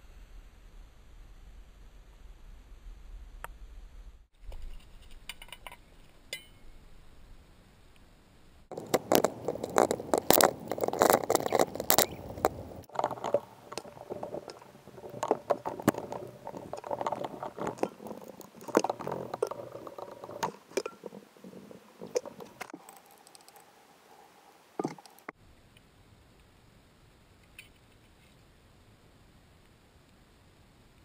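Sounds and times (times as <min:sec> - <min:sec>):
toothbrush scrubbing brake caliper: 0:08.7 - 0:23.6.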